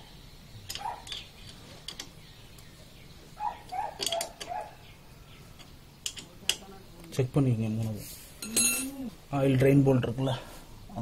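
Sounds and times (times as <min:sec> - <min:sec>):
spanner clinking on bolts: 0:00.6 - 0:02.1, 0:03.7 - 0:04.6, 0:05.6 - 0:06.7.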